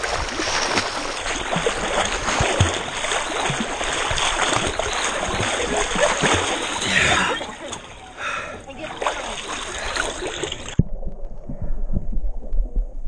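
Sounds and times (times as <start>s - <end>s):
water splashing from swimming: 0.0s - 12.2s.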